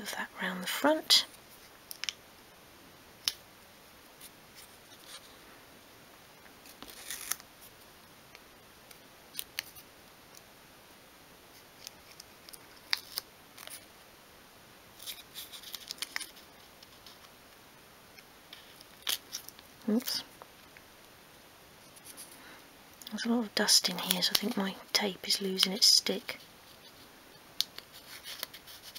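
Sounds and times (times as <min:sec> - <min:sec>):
masking tape crackling and rustling: 0:06.5 - 0:10.5, 0:11.5 - 0:14.0, 0:15.0 - 0:28.9.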